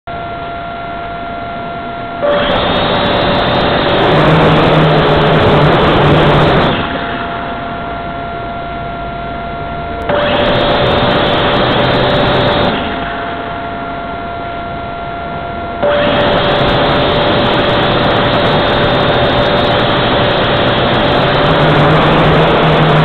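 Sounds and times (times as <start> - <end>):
small motor whining: 2.2 - 6.9, 15.8 - 23.0
loud rushing noise: 2.2 - 13.7, 15.8 - 23.0.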